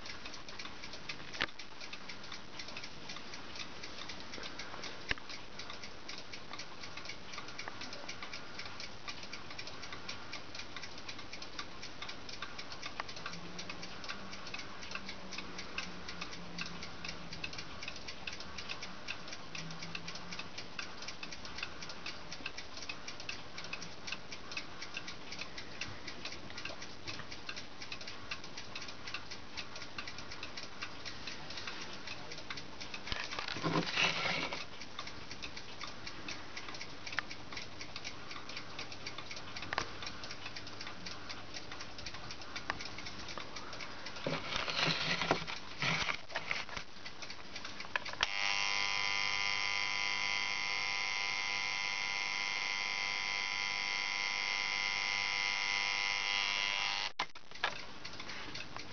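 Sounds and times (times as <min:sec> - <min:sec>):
alarm clock ticking: 0:00.0 - 0:58.9
clock handling noise: 0:00.0 - 0:58.9
loud electric alarm buzz: 0:48.2 - 0:57.2.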